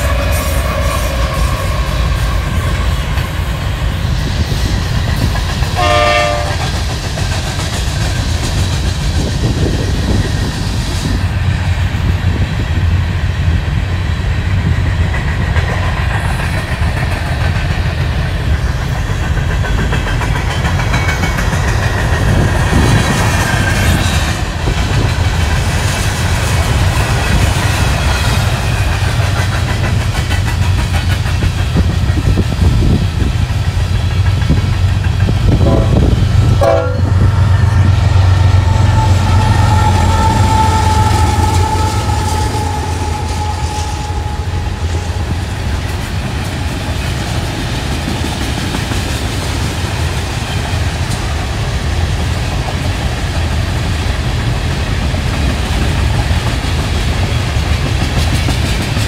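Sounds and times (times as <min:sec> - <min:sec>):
train horn blast: 0:00.0 - 0:03.5, 0:05.8 - 0:06.8, 0:35.5 - 0:45.5
train wheels rumbling on rails: 0:00.0 - 0:59.0.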